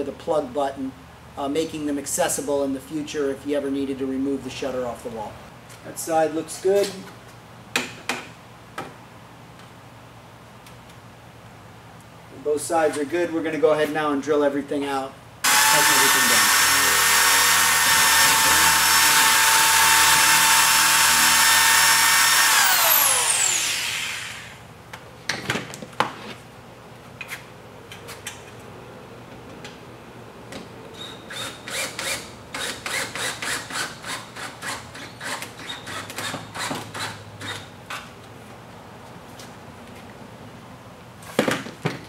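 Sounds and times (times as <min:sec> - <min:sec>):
electric drill running: 0:15.4 - 0:24.6.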